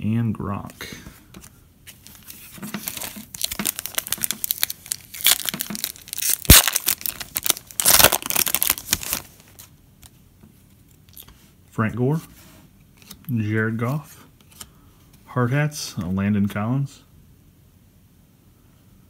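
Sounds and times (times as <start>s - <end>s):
foil wrapper tearing and crinkling: 2.9s - 9.4s.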